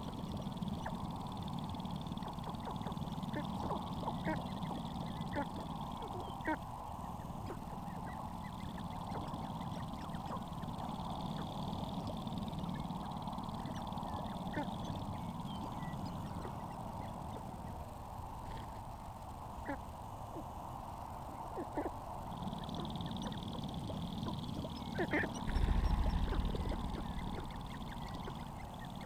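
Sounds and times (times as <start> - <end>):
grouse clucking and cackling: 0.0 - 29.0
steady low rumble: 22.2 - 29.0.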